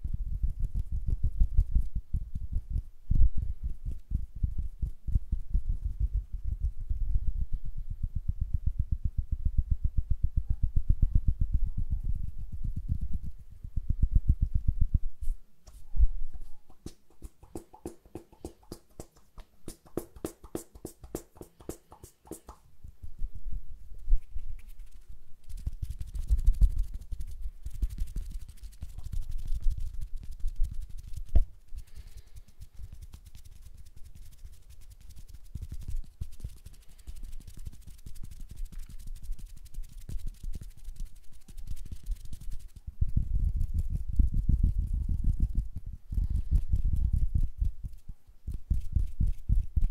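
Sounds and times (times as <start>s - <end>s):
hands rubbing near microphone: 15.2s - 22.6s, 24.0s - 44.0s.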